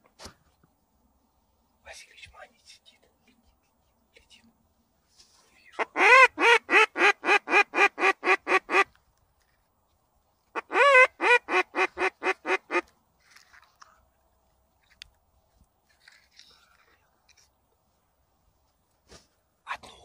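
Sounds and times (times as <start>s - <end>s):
duck quacking: 5.8s - 8.9s, 10.6s - 12.9s.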